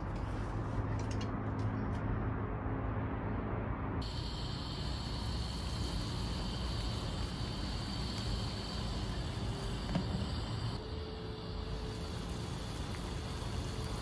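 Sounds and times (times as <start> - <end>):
distant city traffic hum: 0.0 - 14.0
pan sizzling hiss: 4.0 - 14.0.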